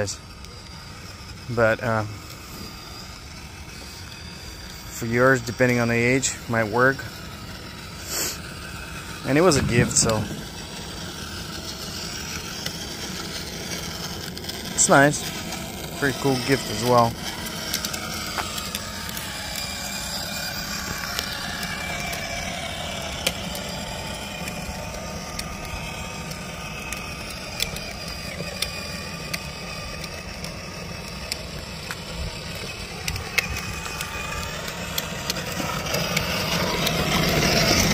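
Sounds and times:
electric motor whirring: 0.0 - 37.9
plastic wheels rolling on asphalt: 0.0 - 37.9
small clicks: 16.8 - 37.9.

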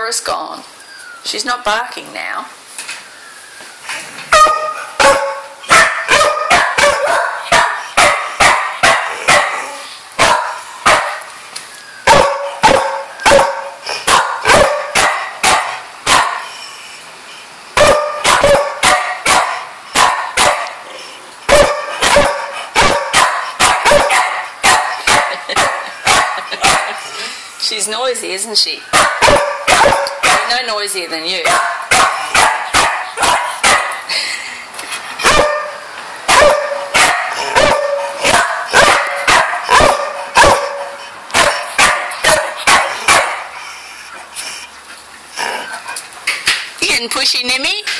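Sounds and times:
dog barking: 4.3 - 11.3, 12.1 - 16.5, 17.8 - 20.8, 21.5 - 27.0, 28.9 - 30.6, 31.4 - 34.0, 35.2 - 43.5.

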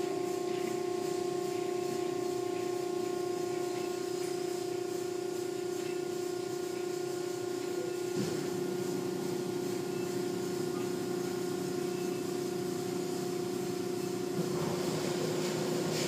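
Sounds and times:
machinery hum: 0.0 - 16.0
water spray: 0.0 - 16.0
cloth brushes washing car body: 13.2 - 16.0.

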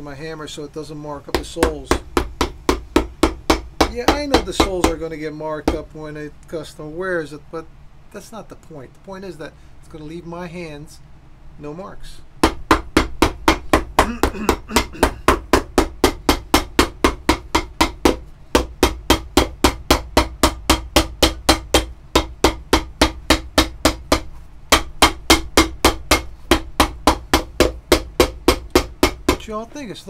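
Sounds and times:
hammer tapping on leather sole: 1.3 - 5.0, 12.4 - 29.5.

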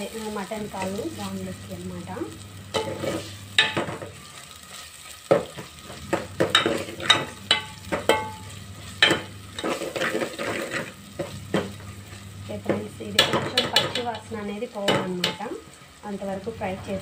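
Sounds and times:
frying sizzle: 0.0 - 17.0
ladle scraping metal pot: 5.9 - 11.8.

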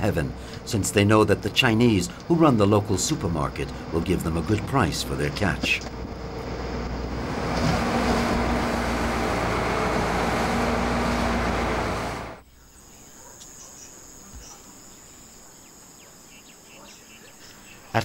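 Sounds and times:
boat engine humming: 0.0 - 12.4
wind: 0.0 - 18.0
water rushing: 7.0 - 12.4
insects trilling: 12.4 - 18.0.

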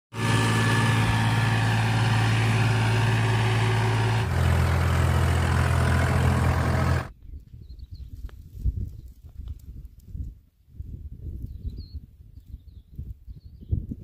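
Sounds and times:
tractor diesel engine under load: 0.1 - 7.1.

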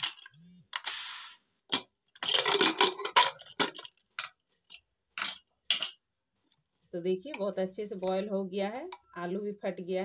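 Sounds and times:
pressure cooker hiss: 0.8 - 1.5.

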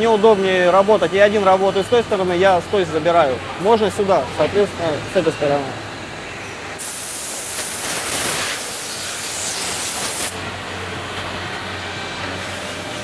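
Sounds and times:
air blow gun hissing: 6.8 - 10.4.

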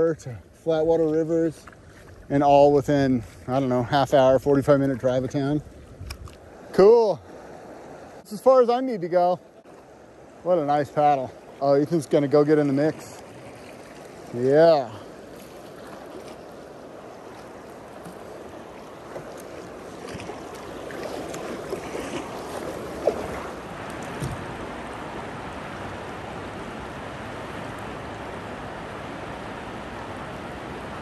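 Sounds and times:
kayak paddle splashes and knocks: 1.0 - 2.5, 12.5 - 14.4, 15.3 - 25.0.

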